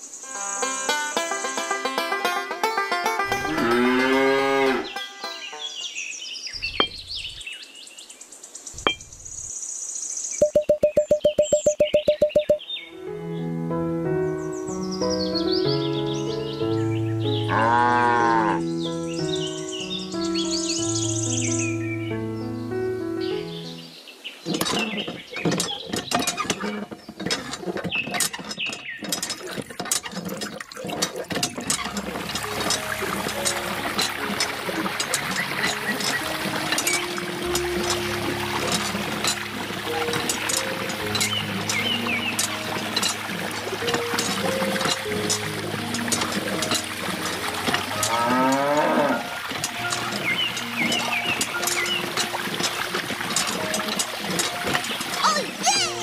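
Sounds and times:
cow mooing: 3.3s - 5.0s, 17.5s - 18.7s, 47.8s - 49.4s
high bird chirps: 10.2s - 13.0s
pump squeaks: 10.4s - 12.6s, 24.4s - 56.0s
hand pump plastic clicks: 24.5s - 56.0s
water trickling from spout: 24.5s - 56.0s.

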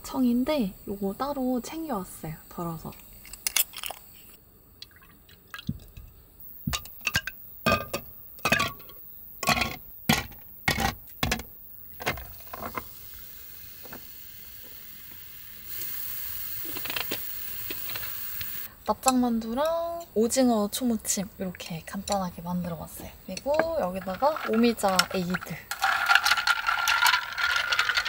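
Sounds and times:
carbonated water fizzing: 12.0s - 18.7s, 23.5s - 28.0s
ice cubes clinking in glass: 23.5s - 28.0s.

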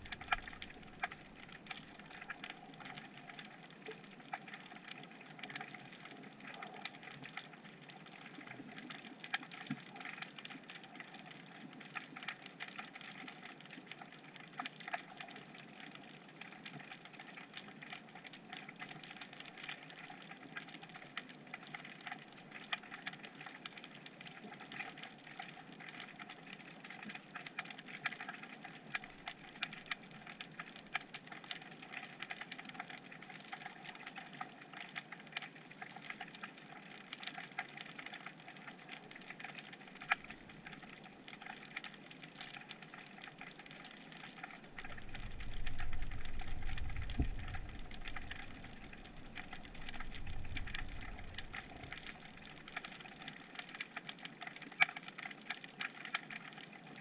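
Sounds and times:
snapping shrimp clicks underwater: 0.0s - 57.0s
low rumble: 44.8s - 52.6s.

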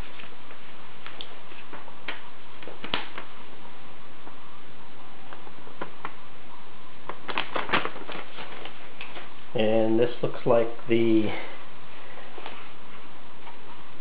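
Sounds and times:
steady hiss: 0.0s - 14.0s
paper crinkling: 7.0s - 9.4s.

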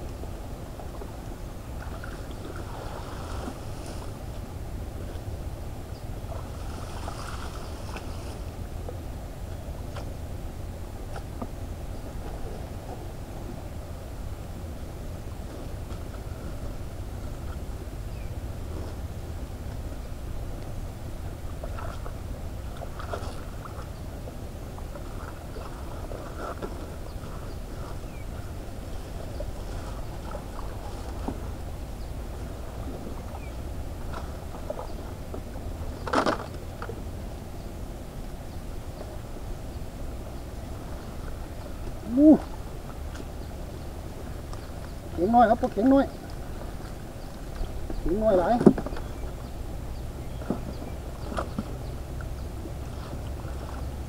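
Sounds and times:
water sloshing and splashing: 0.0s - 9.0s, 20.6s - 37.3s, 40.1s - 54.0s
wind rumble on microphone: 0.0s - 54.0s.

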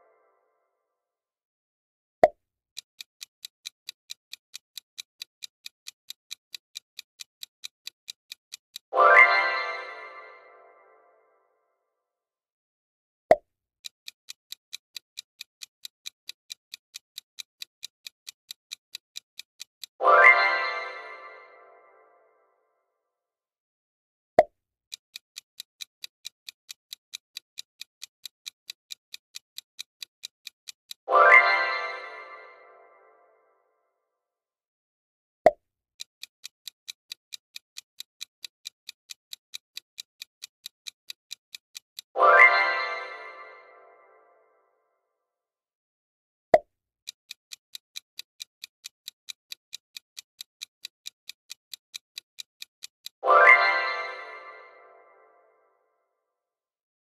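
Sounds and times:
clock ticking: 2.8s - 10.4s, 13.8s - 21.5s, 24.9s - 32.6s, 36.0s - 43.6s, 47.0s - 54.8s.

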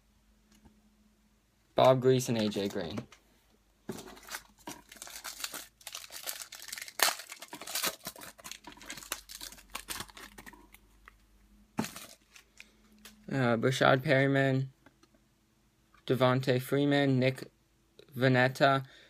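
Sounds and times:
foil wrapper crinkling and tearing: 4.0s - 10.8s.

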